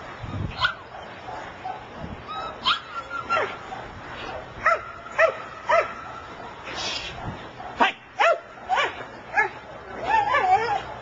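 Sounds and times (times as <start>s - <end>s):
young dog yelping: 0.2s - 6.2s, 7.2s - 11.0s.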